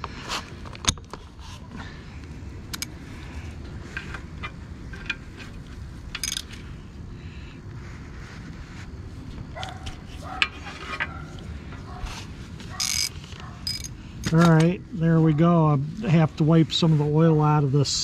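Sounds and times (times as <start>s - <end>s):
ratchet wrench clicking: 2.7s - 2.9s, 6.1s - 6.6s, 12.7s - 14.7s.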